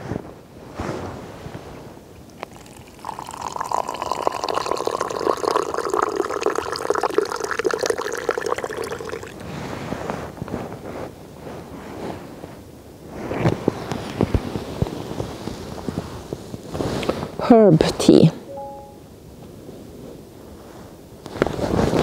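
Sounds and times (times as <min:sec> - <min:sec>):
hot water pouring into cup: 0:02.2 - 0:09.6.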